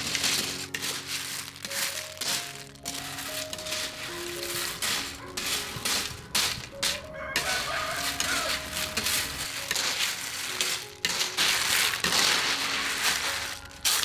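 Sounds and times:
rooster crowing: 7.0 - 8.9.

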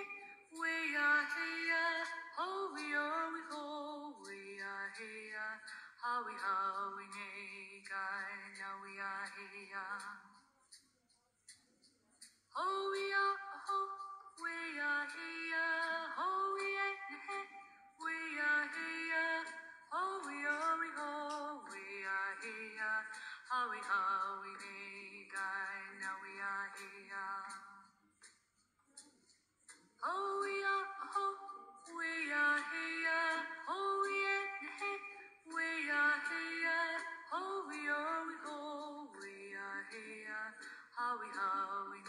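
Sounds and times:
woman and man singing together: 30.0 - 42.0.

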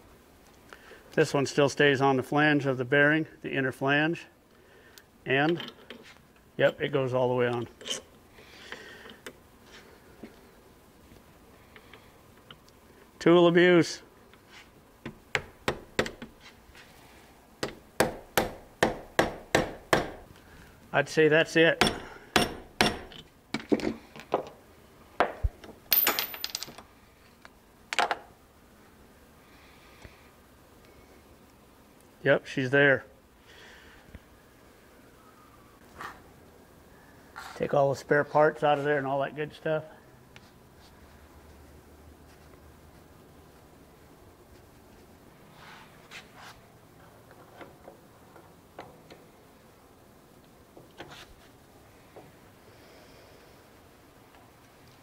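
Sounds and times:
cloth rag rubbing: 45.5 - 46.6.

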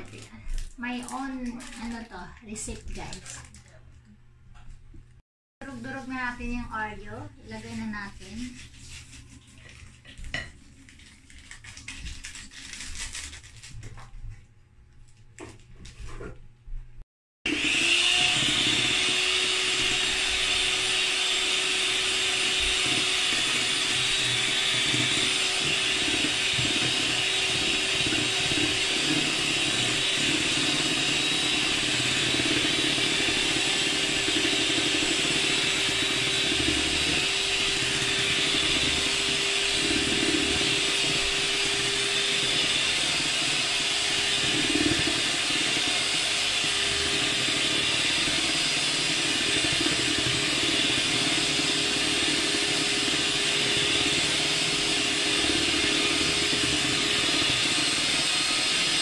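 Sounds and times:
electric hand mixer whirring: 0.0 - 3.7, 17.4 - 59.0.

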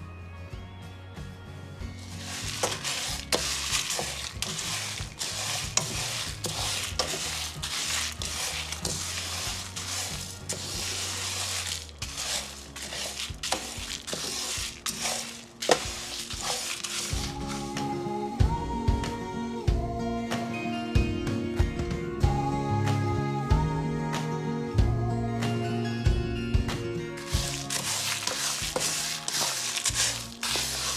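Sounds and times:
seeds rattling in a pan: 2.0 - 17.8, 27.2 - 30.9
wooden spatula scraping a pan: 2.0 - 17.9, 27.2 - 30.9
spices crackling and sizzling: 2.0 - 18.0, 27.2 - 30.9.

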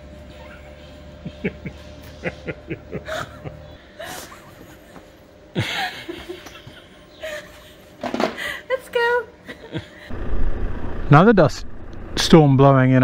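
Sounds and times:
people laughing: 0.4 - 8.0, 9.4 - 10.1.

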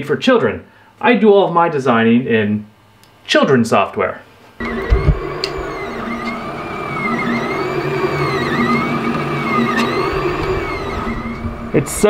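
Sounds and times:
fan hum: 4.6 - 12.0
stepper motors whining: 4.6 - 12.0.

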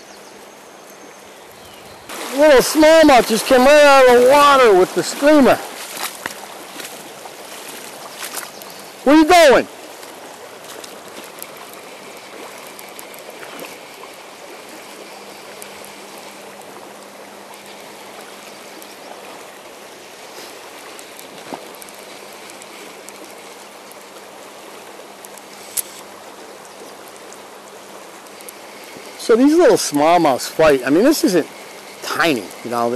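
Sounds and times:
river water over rocks: 0.0 - 32.9
sharp clicks: 25.2 - 26.1.

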